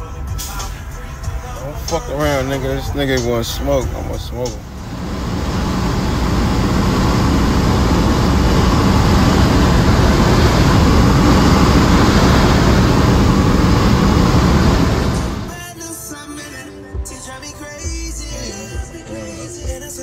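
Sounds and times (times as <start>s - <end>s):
road and wind noise: 0.1s - 15.5s
car engine accelerating hard: 4.4s - 15.5s.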